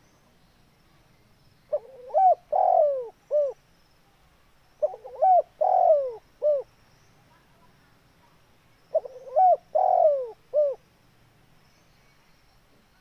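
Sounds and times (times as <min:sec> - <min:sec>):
dove cooing: 0:01.7 - 0:03.6, 0:04.8 - 0:06.7, 0:08.9 - 0:10.8.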